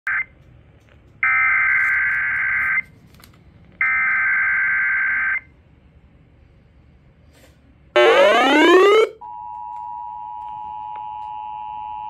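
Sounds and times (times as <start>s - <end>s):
raspy digital alert tones: 8.0s - 9.2s.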